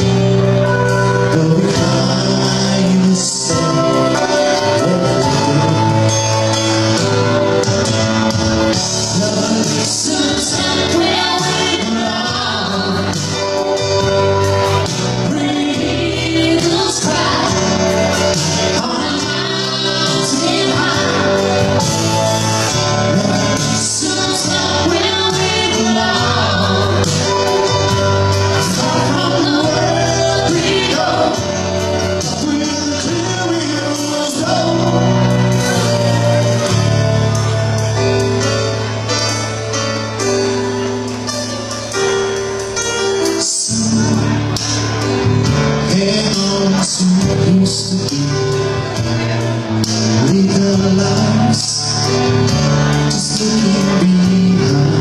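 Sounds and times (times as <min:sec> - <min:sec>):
man singing: 0:00.0 - 0:37.8, 0:43.2 - 0:55.0
instrumental accompaniment: 0:00.0 - 0:55.0
woman singing: 0:09.6 - 0:13.5, 0:15.2 - 0:17.9, 0:18.7 - 0:21.6, 0:23.5 - 0:27.7, 0:28.5 - 0:31.4.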